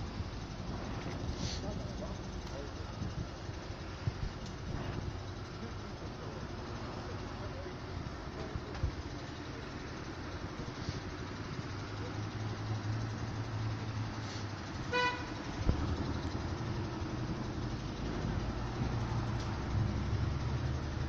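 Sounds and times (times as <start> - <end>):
car engine running: 0.0 - 21.0
car horn beep: 14.8 - 15.4.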